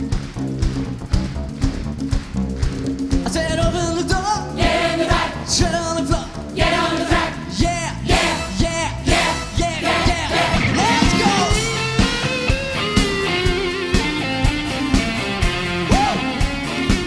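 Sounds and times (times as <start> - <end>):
live pop-rock band playing: 5.1 - 17.0
person singing: 5.6 - 11.8, 15.9 - 16.4.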